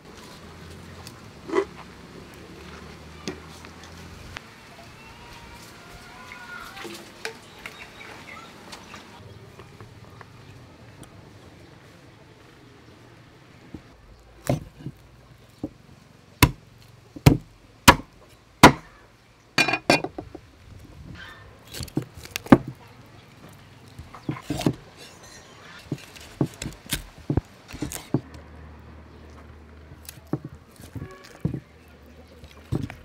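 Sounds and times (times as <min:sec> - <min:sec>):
cleaver chopping on wooden block: 0:17.2 - 0:18.9, 0:24.0 - 0:24.8, 0:25.8 - 0:28.3.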